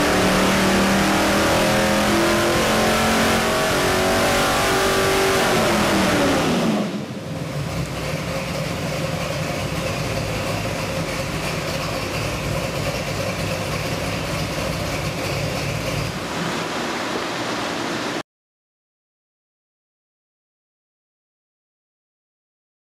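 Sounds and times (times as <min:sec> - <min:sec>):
engine revs falling then idling: 0:00.0 - 0:18.2.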